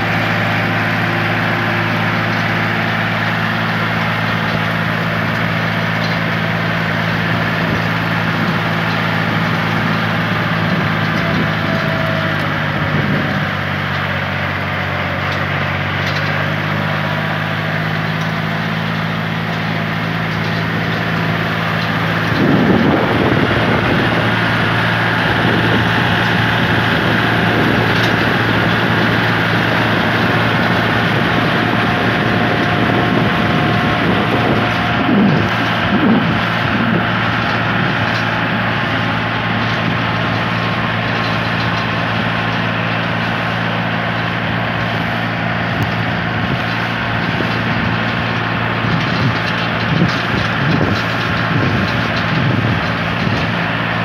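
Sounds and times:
tractor engine drone: 0.0s - 54.0s
wind and road rush: 20.0s - 54.0s.

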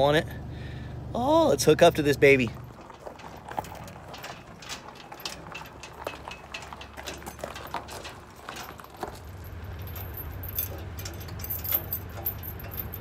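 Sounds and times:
low steady hum: 0.0s - 13.0s
light metal rattles: 1.6s - 13.0s
metal clinking at trailer hitch: 1.8s - 13.0s
small wheels rolling on gravel: 2.1s - 13.0s
footsteps crunching on gravel: 2.4s - 10.9s.

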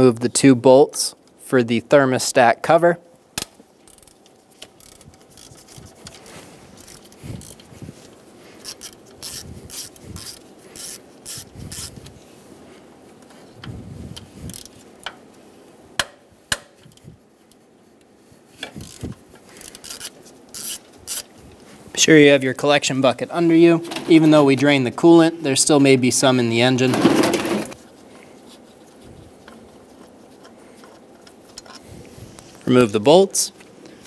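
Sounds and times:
ratchet clicking: 3.9s - 4.2s, 4.8s - 5.8s, 6.8s - 7.7s, 8.6s - 11.9s, 14.5s - 14.7s, 18.7s - 21.3s.

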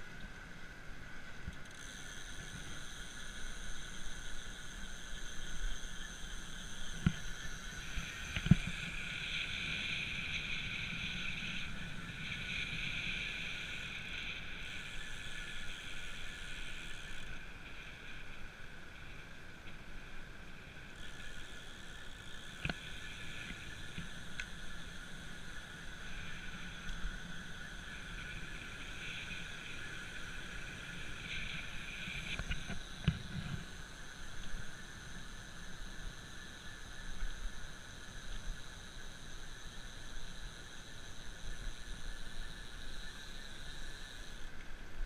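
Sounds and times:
tyres and drivetrain running noise: 0.0s - 44.5s.

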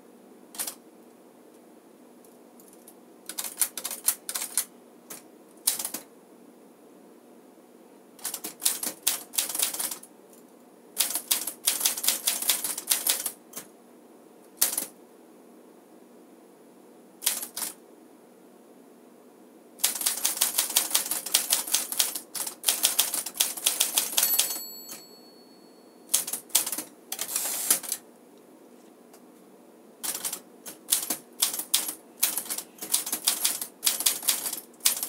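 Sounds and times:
manual typewriter typing: 0.6s - 0.8s, 2.6s - 6.0s, 8.2s - 10.0s, 11.0s - 13.7s, 14.6s - 14.9s, 17.2s - 17.8s, 19.8s - 25.0s, 26.1s - 28.0s, 30.0s - 35.0s.

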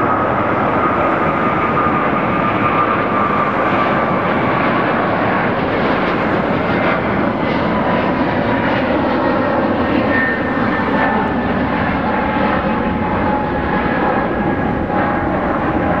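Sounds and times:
jet engine roar: 0.0s - 16.0s.

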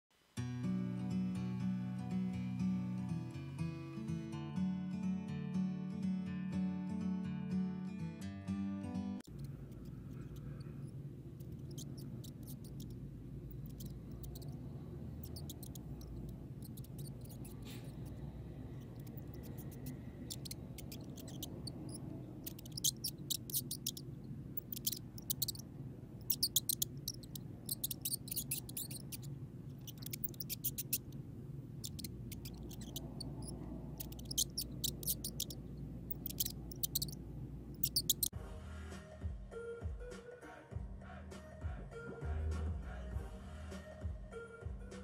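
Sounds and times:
high squeaks and chirps: 9.2s - 38.3s
steady low hum: 9.3s - 38.3s.

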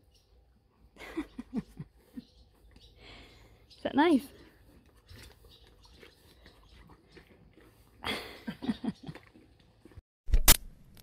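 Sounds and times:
horse chewing with crunches: 4.4s - 10.0s.

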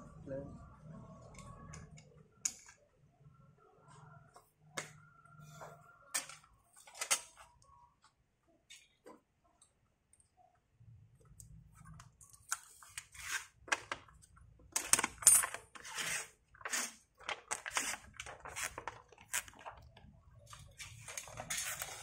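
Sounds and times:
plastic film crackling as peeled: 17.2s - 20.0s.

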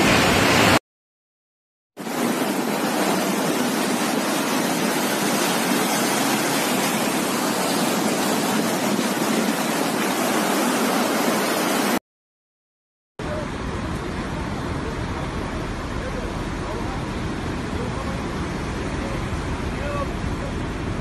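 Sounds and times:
fast-flowing river water rushing: 2.0s - 12.0s.

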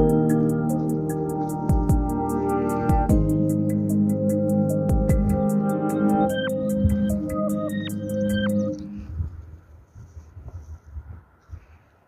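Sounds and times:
ambient synth music with ticking beat: 0.0s - 9.1s.

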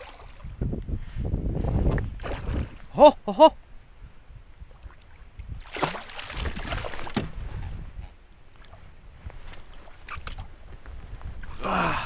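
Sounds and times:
fish thrashing and splashing in water: 5.6s - 7.3s.

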